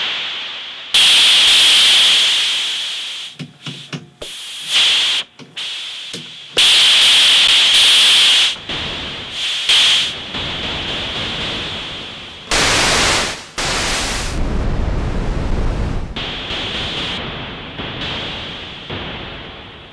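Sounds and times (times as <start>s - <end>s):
synthesizer noise hiss bursts: 0.0s - 19.9s
short pitched synth blips: 4.2s - 4.8s
brief high synth whistle: 4.2s - 5.0s.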